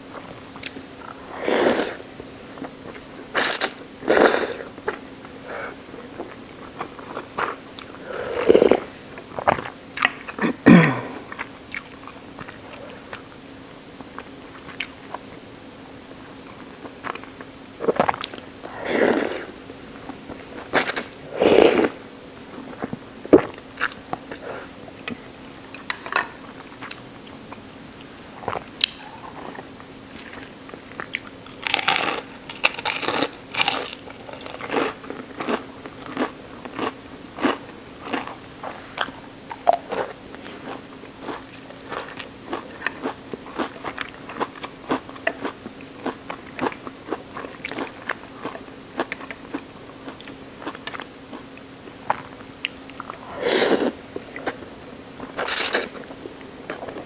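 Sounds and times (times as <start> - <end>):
faint steady hum: 0.0 - 57.0
slurping noodles: 1.2 - 2.0, 3.4 - 4.7, 7.4 - 8.9, 17.8 - 19.6, 20.7 - 22.0, 53.2 - 54.0
chewing: 28.4 - 54.6.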